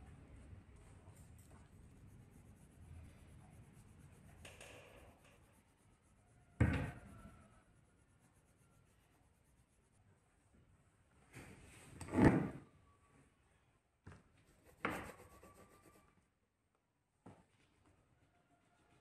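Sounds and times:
pencil scratching on paper: 1.0s - 10.0s, 14.5s - 16.2s.

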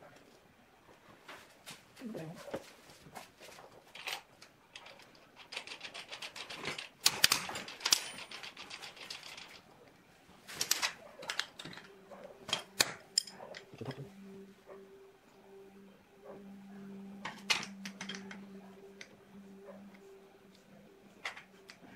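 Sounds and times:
spanner clinking on metal nut: 4.8s - 9.5s, 13.2s - 13.6s.

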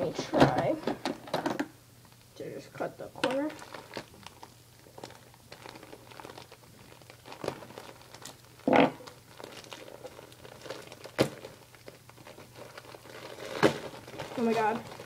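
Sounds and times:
package wrapping crinkling and tearing: 3.2s - 15.0s.

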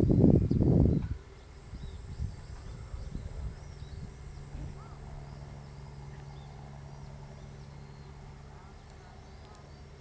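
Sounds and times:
low rumbling on microphone: 0.0s - 10.0s
steady low hum: 0.0s - 10.0s
faint bird chirps: 0.1s - 10.0s.

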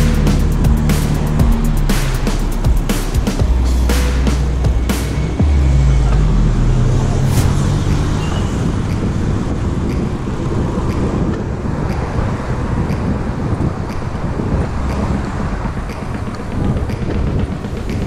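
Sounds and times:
background music: 0.0s - 18.0s
city traffic: 0.0s - 18.0s
wind rushing over microphone: 6.6s - 18.0s.

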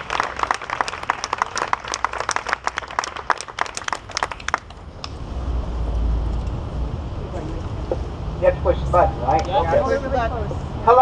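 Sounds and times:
crowd applauding: 0.0s - 4.8s.

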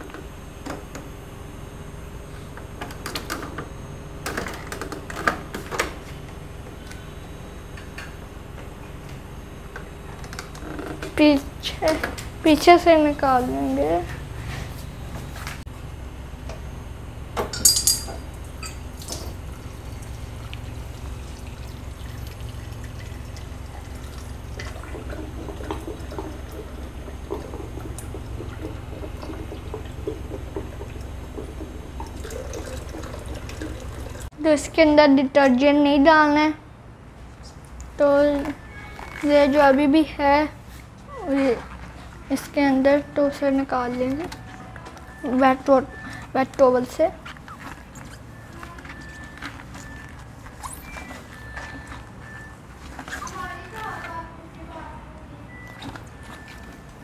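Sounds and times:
water trickling into glass jug: 18.0s - 34.3s.

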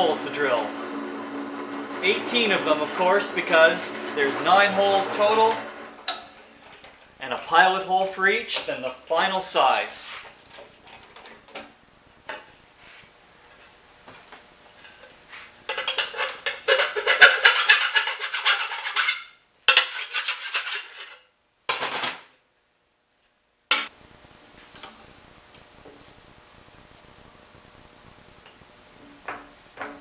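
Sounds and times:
drill press grinding through metal: 0.0s - 6.2s.

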